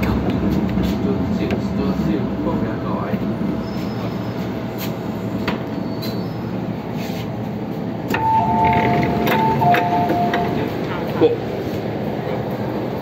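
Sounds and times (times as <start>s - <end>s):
metro train rumble: 0.0s - 13.0s
higher steady tones: 8.1s - 10.7s.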